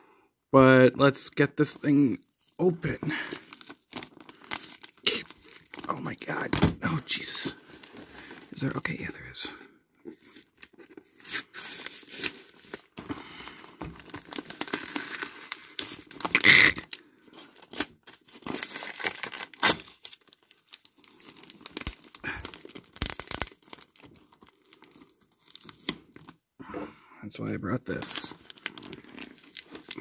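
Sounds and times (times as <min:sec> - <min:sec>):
paper tearing and crumpling: 0:10.3 - 0:16.9, 0:17.5 - 0:26.0, 0:28.0 - 0:30.0.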